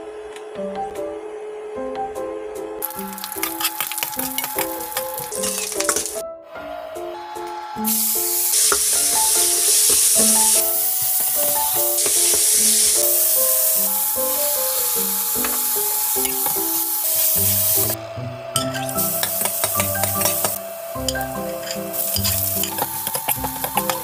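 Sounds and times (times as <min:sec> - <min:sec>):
background music: 0:00.0 - 0:24.0
meat sizzling in a wok: 0:02.8 - 0:06.2, 0:07.8 - 0:18.0, 0:18.6 - 0:24.0
spatula scraping a wok: 0:02.9 - 0:06.2, 0:07.9 - 0:18.0, 0:18.7 - 0:24.0.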